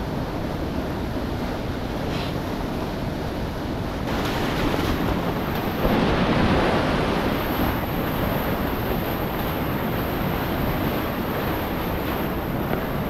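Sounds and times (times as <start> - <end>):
whitewater rushing through rapids: 0.0 - 13.0.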